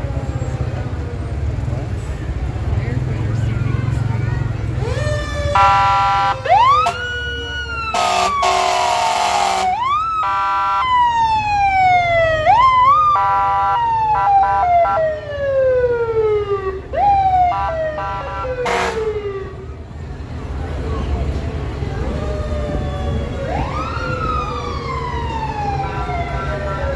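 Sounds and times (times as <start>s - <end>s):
emergency sirens wailing: 0.0s - 26.9s
long loud horn blast: 5.6s - 6.4s, 8.0s - 10.8s, 17.6s - 19.2s.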